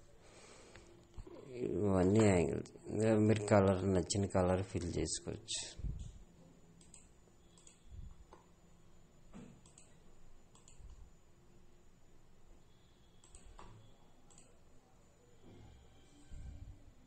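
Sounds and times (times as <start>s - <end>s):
computer mouse clicks: 6.8s - 8.5s, 9.5s - 11.0s, 13.2s - 14.6s.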